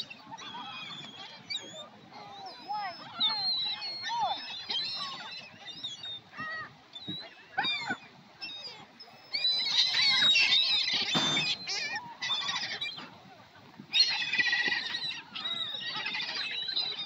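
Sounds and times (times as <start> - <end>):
gulls calling: 0.0 - 17.0.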